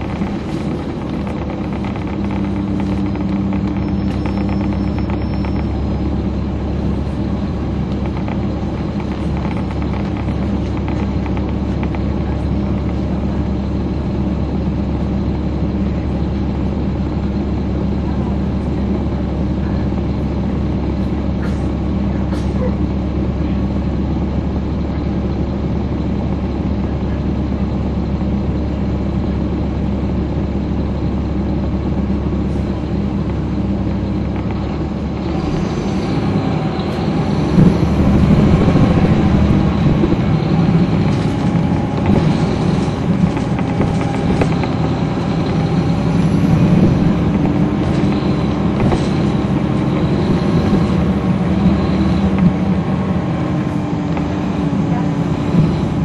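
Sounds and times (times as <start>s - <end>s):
knocks and rattles: 0.0s - 5.7s
bus diesel engine running: 0.0s - 56.0s.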